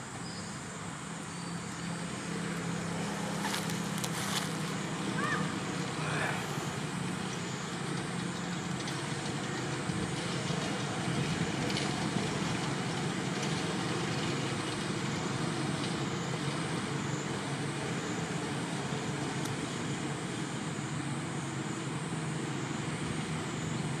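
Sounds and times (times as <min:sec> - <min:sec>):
constant hiss: 0:00.0 - 0:24.0
low engine rumble: 0:00.0 - 0:24.0.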